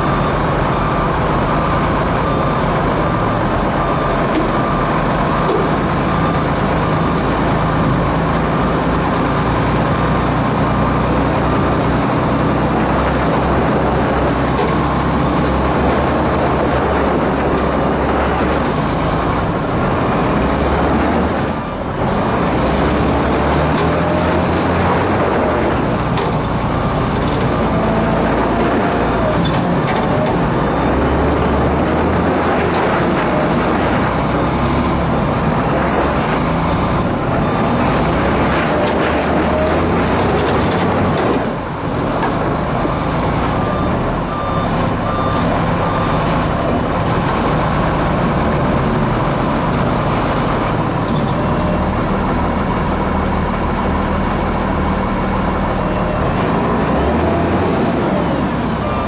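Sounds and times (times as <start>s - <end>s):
reversing alarm beeping: 0.0s - 35.2s, 42.2s - 49.4s, 57.1s - 59.0s
heavy diesel engines running hard: 0.0s - 59.0s.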